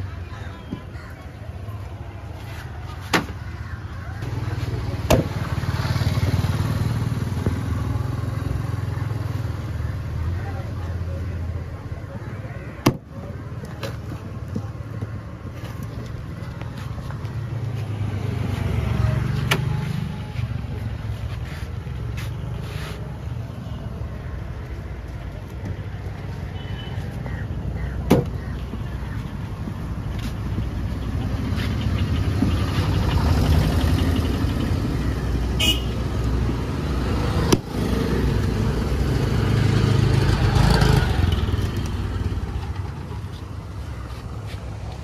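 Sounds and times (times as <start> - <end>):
passing traffic rumble: 0.0 - 45.0
car horn toot: 35.6 - 36.0.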